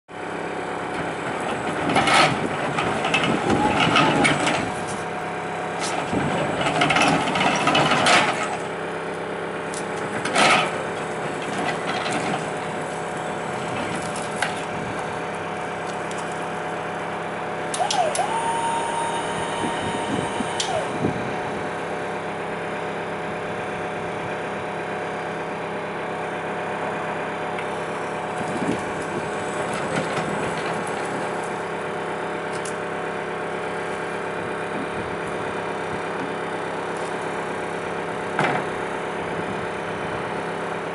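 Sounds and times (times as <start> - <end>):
steady machine hum: 14.8 - 24.2
electric motor whining: 17.7 - 22.0.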